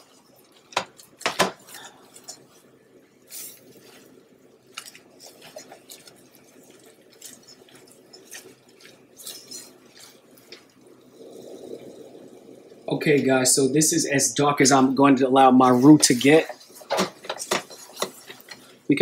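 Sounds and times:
whisk tapping pan: 0:00.0 - 0:02.6, 0:15.6 - 0:19.0
whisk sloshing thick roux: 0:03.2 - 0:11.2, 0:15.5 - 0:19.0.

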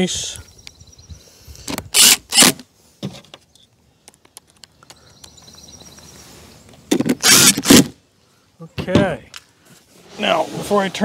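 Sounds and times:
cordless drill driving screw: 0:01.9 - 0:02.6, 0:07.2 - 0:07.8.

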